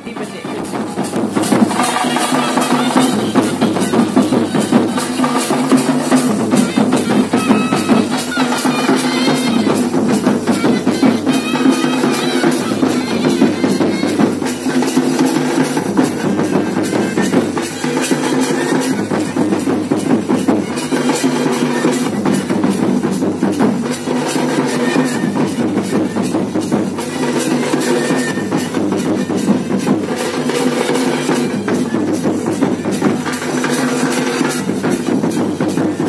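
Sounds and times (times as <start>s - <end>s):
barrel drums beating: 0.0s - 36.0s.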